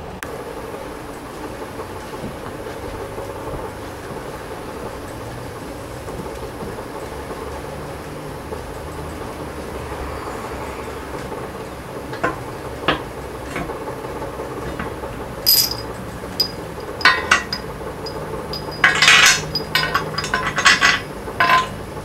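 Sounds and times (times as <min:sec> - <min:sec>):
light metal knocks: 0:15.5 - 0:21.8
ringing metal clanks: 0:15.5 - 0:21.8
metal scraping on metal: 0:16.4 - 0:21.8.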